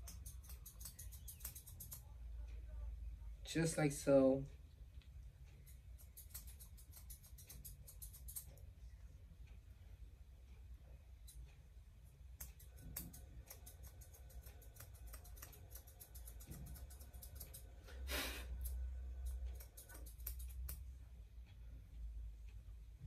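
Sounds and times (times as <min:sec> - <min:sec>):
scissors snipping: 0:00.0 - 0:02.1, 0:05.6 - 0:08.5, 0:12.4 - 0:17.7, 0:18.6 - 0:20.8
short breathy puff: 0:18.1 - 0:18.5.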